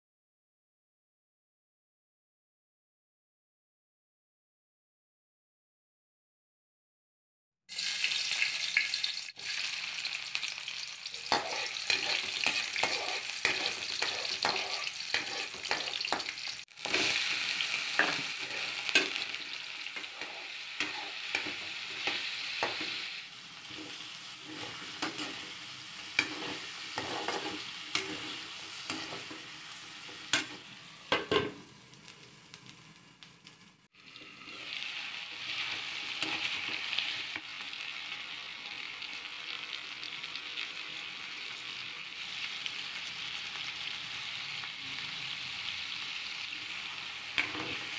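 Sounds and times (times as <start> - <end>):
food sizzling in a pan: 7.7 - 47.9
utensil scraping a metal pan: 11.1 - 19.4, 20.0 - 22.9, 23.7 - 29.4.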